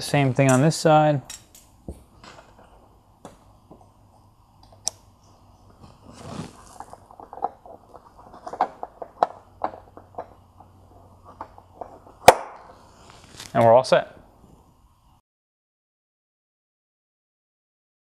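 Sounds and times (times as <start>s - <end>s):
brushing rustle: 5.8s - 6.9s, 12.9s - 13.6s.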